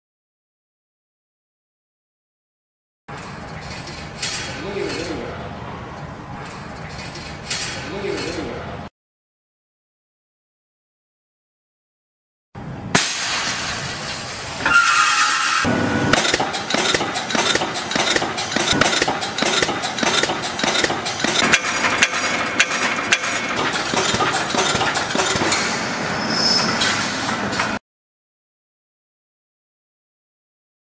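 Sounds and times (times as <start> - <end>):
welding machine clattering: 16.1 - 25.9.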